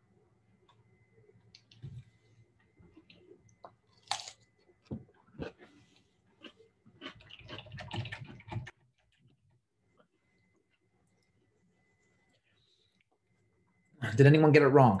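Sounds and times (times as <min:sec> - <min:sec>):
faint steady high tone: 0:00.0 - 0:05.1, 0:09.8 - 0:15.0.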